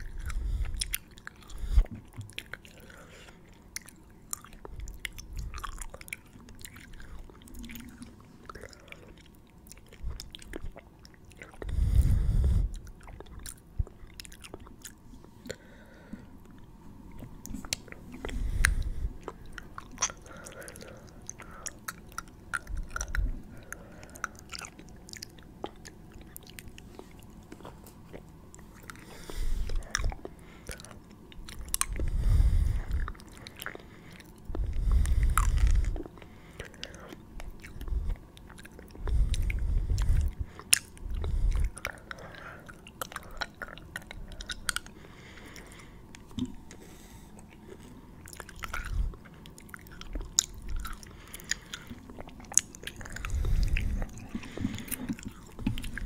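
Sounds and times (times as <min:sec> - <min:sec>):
wet mouth clicks and smacks: 0:21.3 - 0:23.3, 0:29.7 - 0:32.0, 0:37.4 - 0:44.9.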